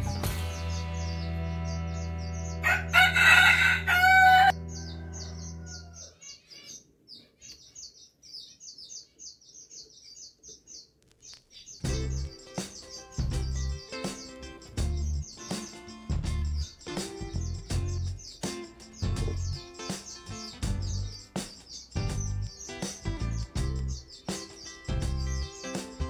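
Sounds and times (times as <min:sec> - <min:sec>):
background music of held chords: 0:00.0 - 0:05.6, 0:11.8 - 0:26.0
loud pitched bird call: 0:00.3 - 0:09.4, 0:11.5 - 0:26.0
short high bird chirps: 0:11.2 - 0:26.0.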